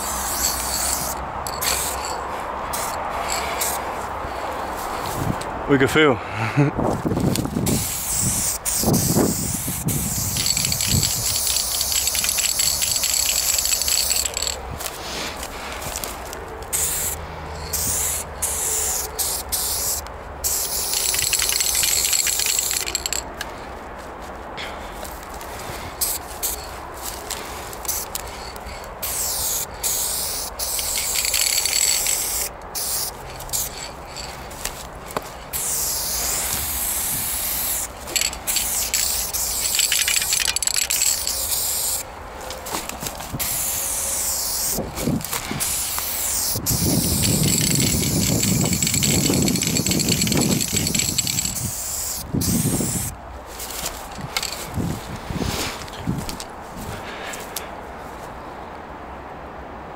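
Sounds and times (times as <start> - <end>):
spray paint can hissing: 0.0 - 3.8, 7.3 - 16.1, 16.7 - 23.2, 26.0 - 42.1, 43.3 - 54.6.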